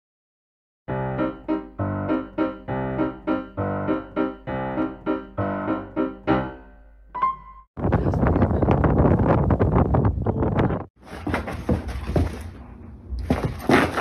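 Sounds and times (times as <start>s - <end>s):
bouncy piano music: 0.9s - 7.7s.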